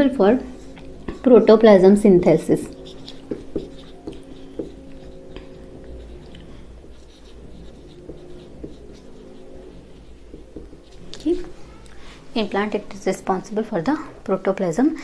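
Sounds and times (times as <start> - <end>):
faint steady hum: 0.0 - 15.0
marker writing on whiteboard: 0.4 - 11.6.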